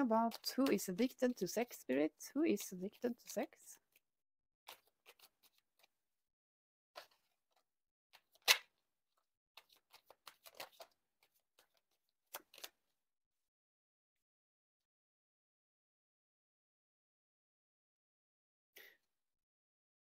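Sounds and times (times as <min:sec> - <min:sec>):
cards being shuffled: 0:00.1 - 0:01.7, 0:04.7 - 0:05.9, 0:08.2 - 0:08.7, 0:09.6 - 0:12.8.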